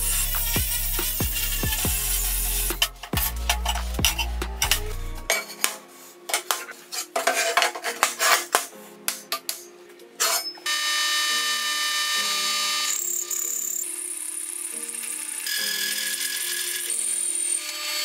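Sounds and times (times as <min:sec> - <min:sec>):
steel plates clanking and scraping: 0:00.0 - 0:08.7
background music: 0:00.0 - 0:18.0
drill press whine: 0:10.6 - 0:18.0.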